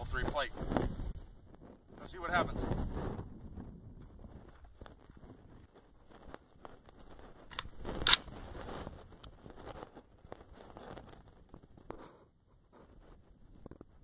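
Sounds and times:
clothing and sling movement: 4.4s - 12.1s
rifle being raised and shouldered: 7.5s - 8.4s.

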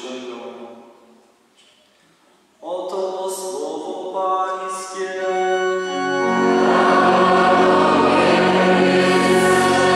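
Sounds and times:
congregation singing: 4.5s - 9.9s
organ playing: 4.6s - 9.9s.

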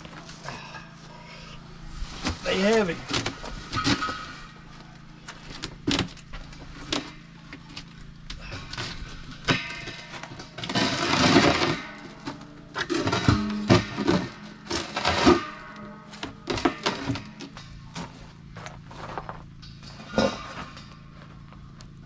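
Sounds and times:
steel tank knocking and clanking: 9.3s - 17.7s
steel tank scraping on concrete: 9.8s - 17.6s.

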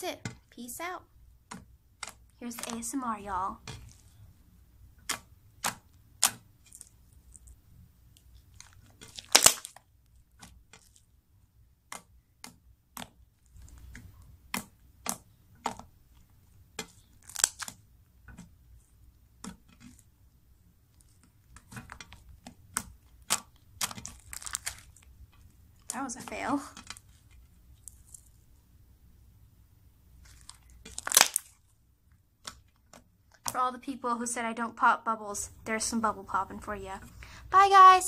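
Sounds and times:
loud crackling slime pops: 8.6s - 9.8s, 17.2s - 17.8s, 21.6s - 25.0s, 30.2s - 31.6s
slime clicks and pops: 9.2s - 9.8s, 30.9s - 31.5s.

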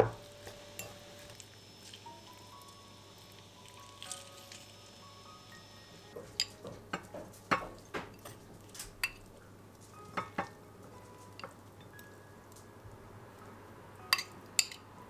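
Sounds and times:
utensils clinking against dishes: 0.4s - 1.1s, 6.2s - 9.3s, 14.1s - 14.8s.

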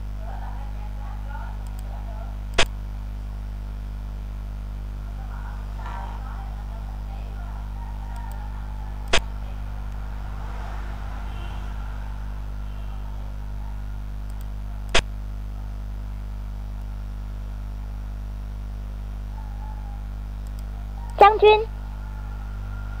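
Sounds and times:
electrical hum: 0.0s - 23.0s
sharp computer clicks: 2.5s - 2.8s, 8.2s - 8.4s, 9.0s - 9.3s, 14.2s - 15.1s, 20.4s - 21.3s.

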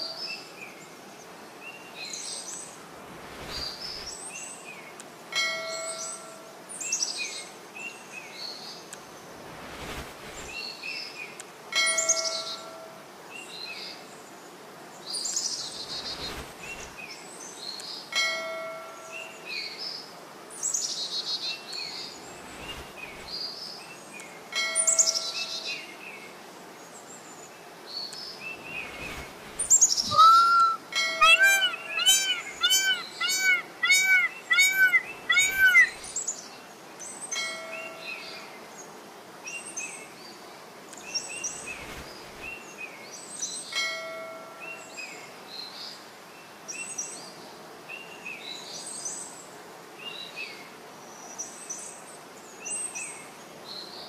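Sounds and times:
small birds chirping and whistling: 1.7s - 4.8s, 28.0s - 36.5s.

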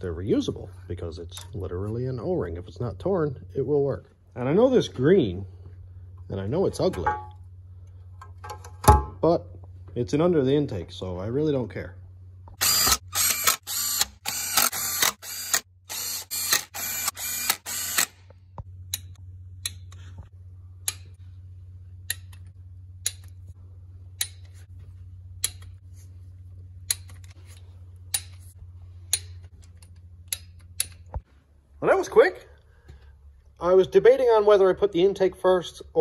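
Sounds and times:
steady low hum: 0.0s - 34.1s
torque wrench ratcheting and clicking: 12.6s - 18.2s.

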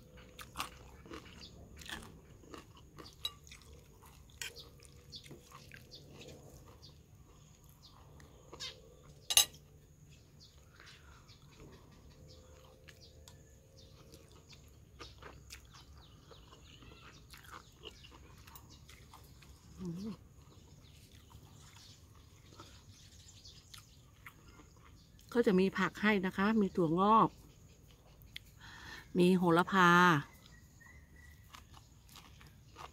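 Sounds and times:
chewing: 0.0s - 25.4s, 27.4s - 28.8s, 30.3s - 32.9s
fork and spoon scraping ceramic bowl: 9.2s - 9.6s.

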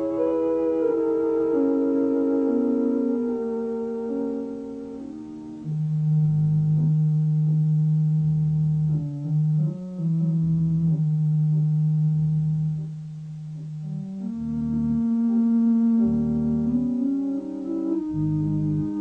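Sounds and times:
sustained synthesizer tones: 13.6s - 19.0s.

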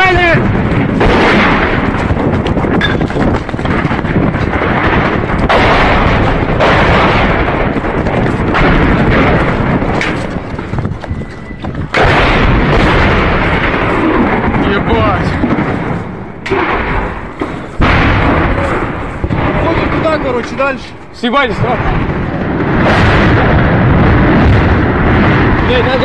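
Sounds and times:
running footsteps: 1.8s - 5.5s, 7.4s - 12.0s.

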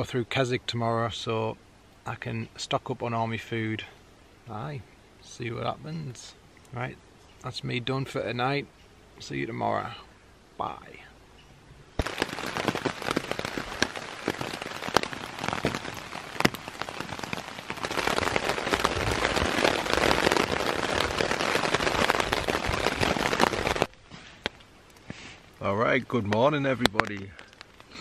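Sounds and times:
heavy rain on a tarp: 12.0s - 28.0s.

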